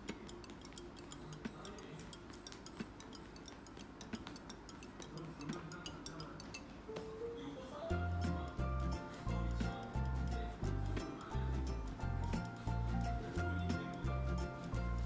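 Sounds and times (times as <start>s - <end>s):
cat toy ticks and clicks: 0.0s - 6.7s
faint background music: 0.0s - 15.0s.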